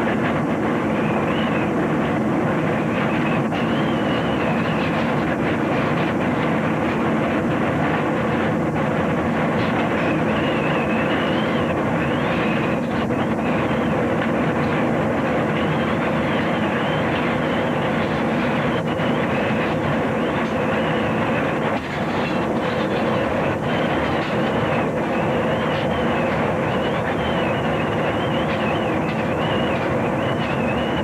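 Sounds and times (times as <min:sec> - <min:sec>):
tornado winds rushing: 0:00.0 - 0:31.0
high wavering whistle: 0:01.0 - 0:01.8, 0:02.8 - 0:05.1, 0:09.9 - 0:14.1, 0:15.5 - 0:21.6, 0:22.3 - 0:31.0.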